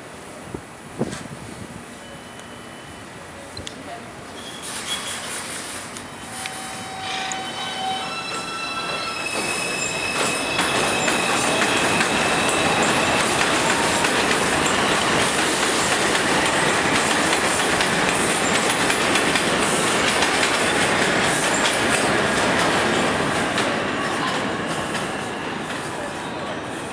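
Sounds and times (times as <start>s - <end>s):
faint wheel squeal: 4.2s - 13.1s
train wheels rumbling and rattling: 4.2s - 26.9s
rail joint clicks: 5.9s - 26.0s.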